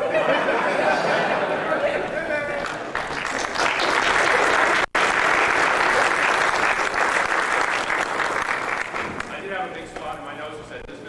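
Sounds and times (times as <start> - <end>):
audience applauding: 2.5 - 10.2.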